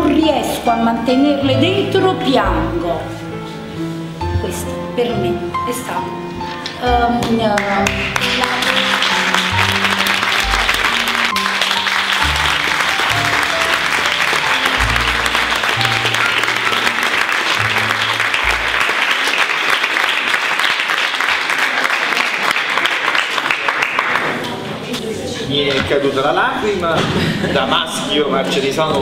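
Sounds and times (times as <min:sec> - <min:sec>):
low bass music: 0:00.0 - 0:05.5, 0:06.8 - 0:08.5, 0:09.6 - 0:19.0
audience applause: 0:07.6 - 0:24.6.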